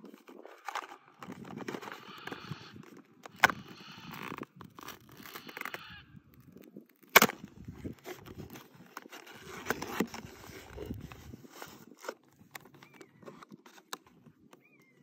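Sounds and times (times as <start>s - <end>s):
crinkling of cardboard and foil: 0.0s - 14.7s
cardboard snapping: 6.7s - 10.3s.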